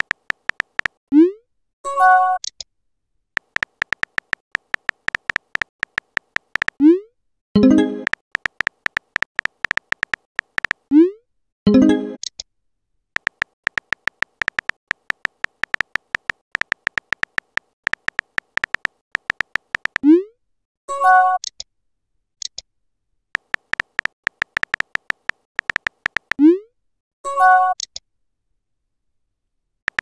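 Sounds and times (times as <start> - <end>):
keyboard tap clicks: 0.0 - 1.0, 3.4 - 6.8, 8.0 - 10.9, 13.2 - 20.0, 23.4 - 26.4.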